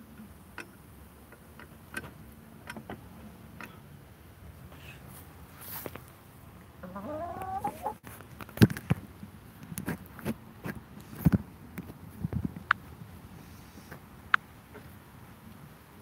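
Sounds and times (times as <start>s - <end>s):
hen squawking: 6.8s - 8.0s.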